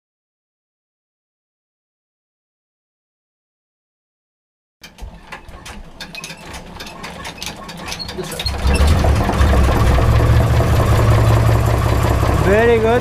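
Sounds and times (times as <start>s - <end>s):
mechanical clicks and rattles: 4.8s - 13.0s
boat engine running: 7.6s - 13.0s.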